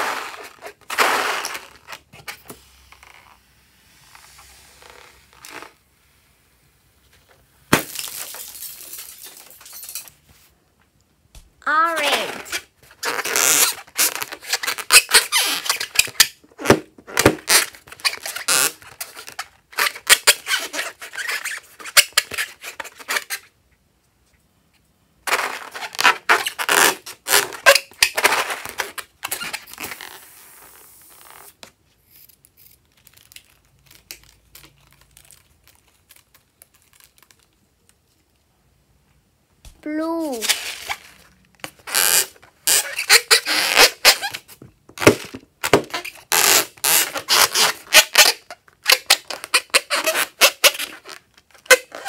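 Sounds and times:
rubber balloon being squeezed: 0.0 - 6.3, 11.7 - 23.5, 25.2 - 31.8, 40.0 - 52.0
slime crackling and squishing: 32.7 - 38.1.

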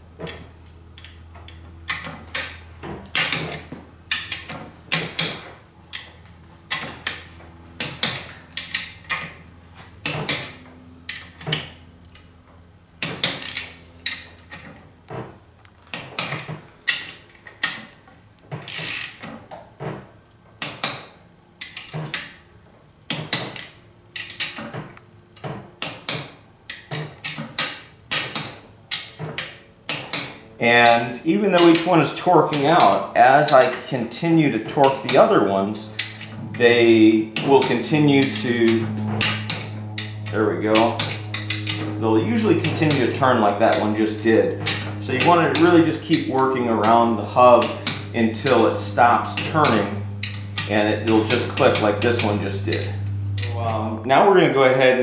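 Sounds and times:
ratcheting wrench clicking: 1.0 - 9.4, 13.0 - 14.8, 18.6 - 19.3, 23.1 - 24.8, 34.7 - 53.6.

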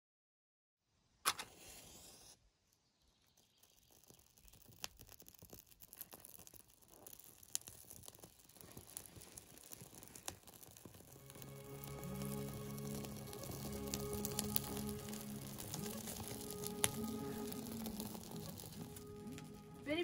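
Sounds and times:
match striking and hissing: 1.3 - 2.4, 3.3 - 19.8
kindling crackling: 1.6 - 20.0.

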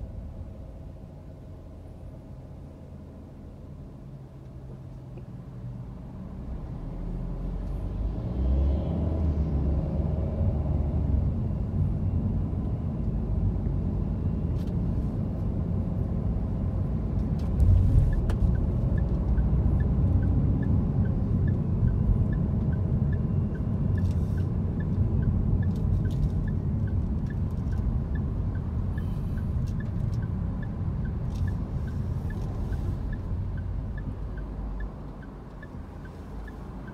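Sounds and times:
car engine and tyre rumble: 0.0 - 36.9
light regular ticking: 18.1 - 36.9.

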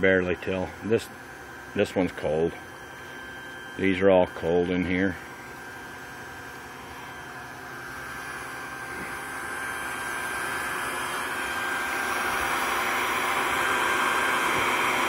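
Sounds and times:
gasifier rushing hiss: 8.8 - 15.0.

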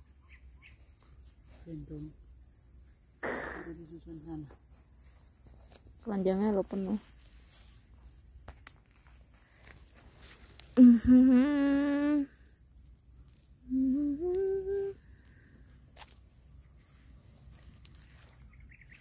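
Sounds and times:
insects trilling: 0.0 - 19.0
person humming: 10.8 - 12.4, 13.7 - 15.0.

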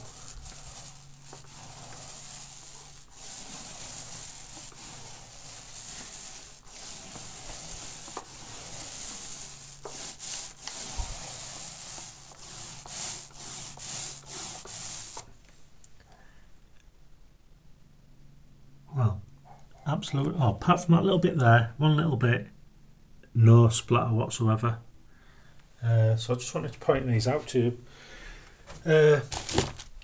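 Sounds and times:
paint roller rolling on a wall: 0.0 - 15.6, 29.2 - 30.0.

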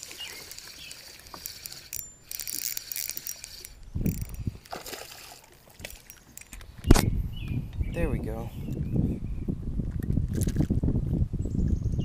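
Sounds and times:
fishing reel cranking and ticking: 0.0 - 6.6.

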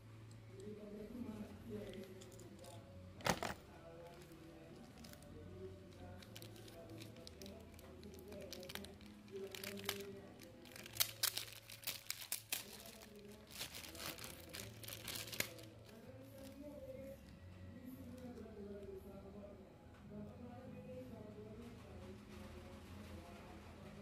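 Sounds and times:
plastic bag crinkling: 1.4 - 17.1.

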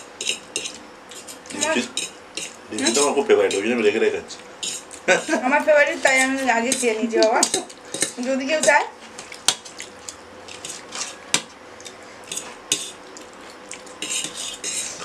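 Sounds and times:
forks clinking on metal plates: 6.0 - 8.8.

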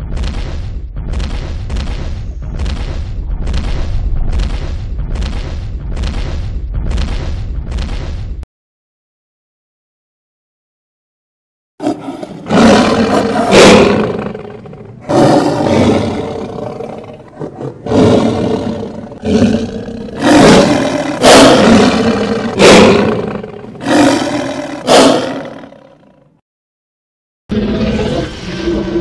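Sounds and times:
dinosaur roars: 11.8 - 26.2, 27.5 - 29.0.

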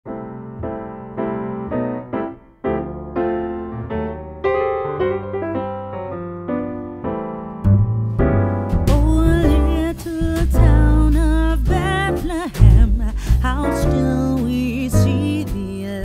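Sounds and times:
piano chords: 0.1 - 16.0
heavy bass: 7.6 - 16.0
sharp drum beats: 8.2 - 15.9
person singing: 8.9 - 16.0.

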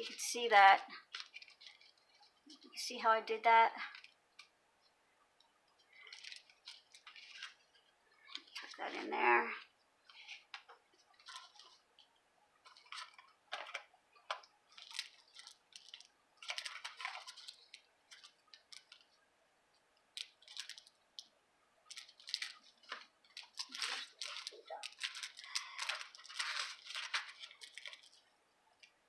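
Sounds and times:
paper rustling: 1.0 - 2.8, 6.0 - 9.0, 10.1 - 11.8, 12.6 - 19.1, 21.9 - 28.3.

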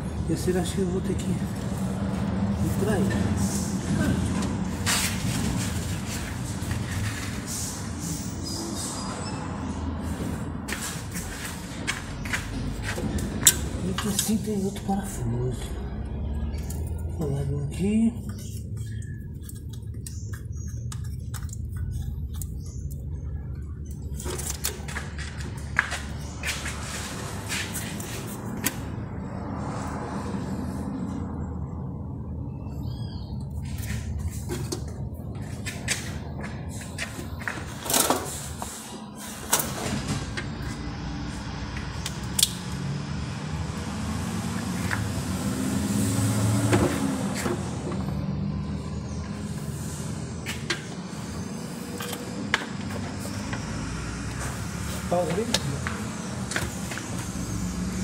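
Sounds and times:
low vehicle rumble: 0.0 - 58.0
steady low rumble: 9.6 - 37.8.

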